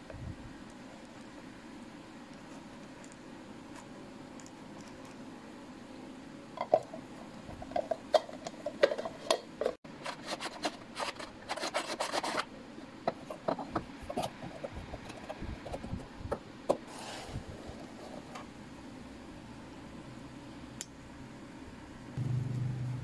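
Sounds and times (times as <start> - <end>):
plastic scraping rasp: 10.0 - 12.5.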